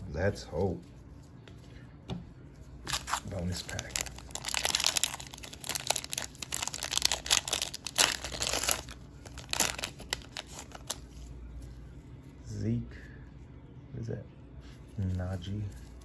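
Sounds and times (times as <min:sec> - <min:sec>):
foil wrapper tearing and crinkling: 0:02.9 - 0:11.1.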